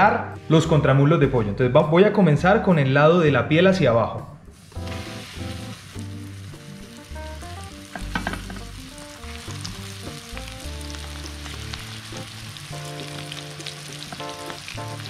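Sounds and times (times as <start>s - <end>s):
soft background music: 0.0s - 15.0s
hot oil sizzling and crackling: 4.5s - 15.0s.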